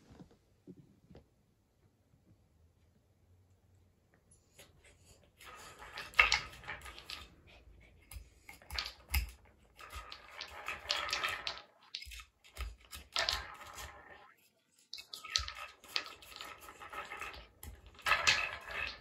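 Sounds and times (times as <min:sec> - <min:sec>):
plastic toys rattling: 0:05.4 - 0:07.8, 0:08.4 - 0:19.0.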